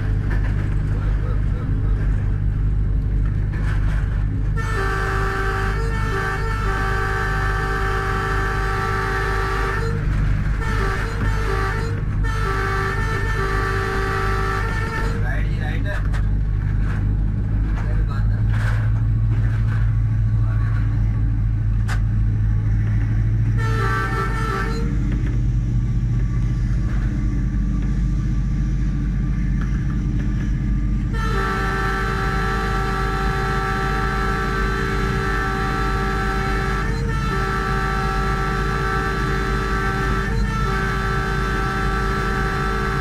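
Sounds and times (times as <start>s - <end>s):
locomotive engine and wheels drone: 0.0s - 43.0s
multi-tone air horn: 4.6s - 15.2s, 23.6s - 25.0s, 31.1s - 43.0s.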